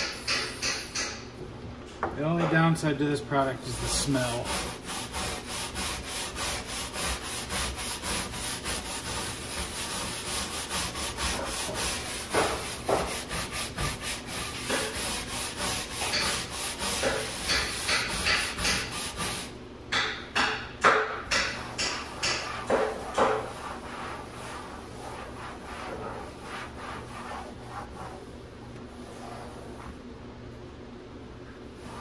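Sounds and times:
stiff brush scrubbing deck: 3.4 - 19.6.

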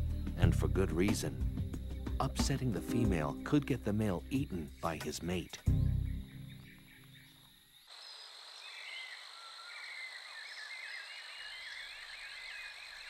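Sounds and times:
music: 0.0 - 7.3
high insect drone: 0.1 - 13.0
frogs chirping: 0.2 - 13.0.

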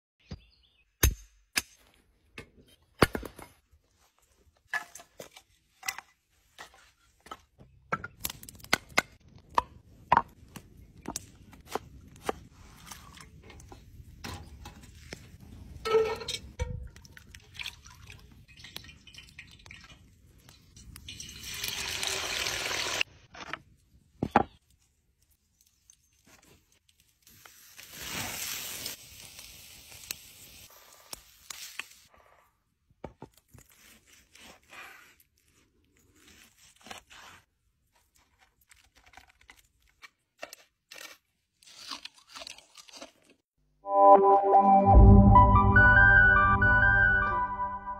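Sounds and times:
mallet striking steel stake: 1.0 - 1.9
steak sizzling on grill: 27.3 - 32.0.

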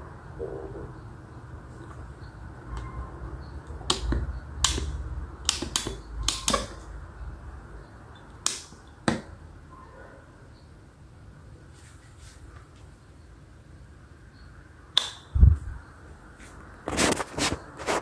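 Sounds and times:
wall switch press: 3.9 - 6.8.

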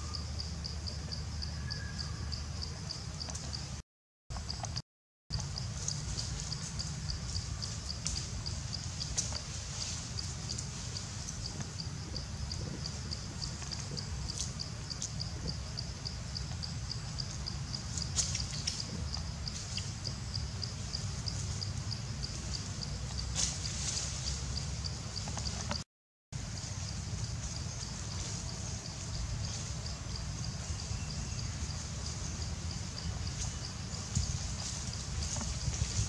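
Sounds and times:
low steady rumble: 4.4 - 25.8.

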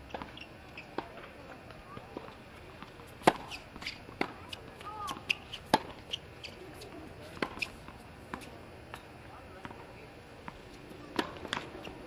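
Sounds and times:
tennis balls struck by rackets: 0.0 - 12.0
shoe squeaks: 0.1 - 1.0, 3.4 - 7.8, 11.6 - 12.0.

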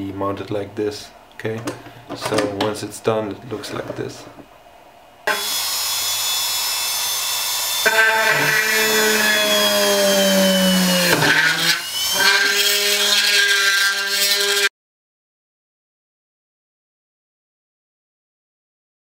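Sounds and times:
rotary tool motor whine: 5.3 - 14.7.

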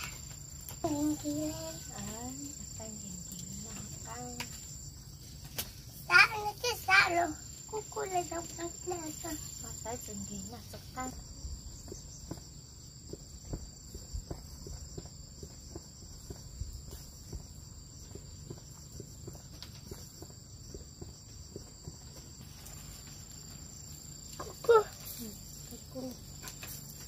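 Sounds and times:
embers crackling: 0.0 - 11.2, 21.2 - 27.0
crickets trilling: 0.0 - 27.0.

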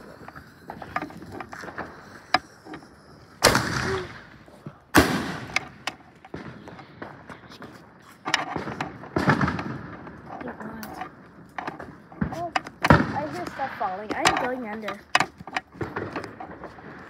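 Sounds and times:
firework pops and crackles: 0.0 - 17.0
firework bangs: 3.2 - 14.8, 15.7 - 17.0.

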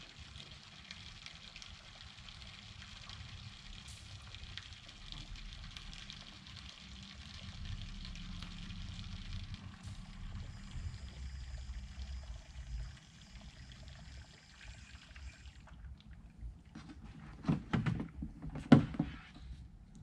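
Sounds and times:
coolant rushing through hose: 0.0 - 17.5
knocks: 17.4 - 19.2.

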